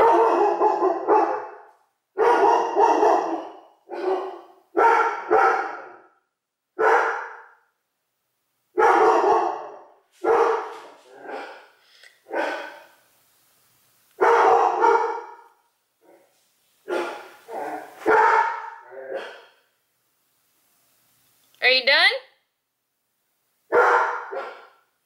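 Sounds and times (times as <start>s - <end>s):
dog barking: 0.0s - 6.2s, 6.8s - 7.7s, 8.8s - 12.9s, 14.2s - 16.2s, 16.8s - 19.6s, 23.7s - 24.9s.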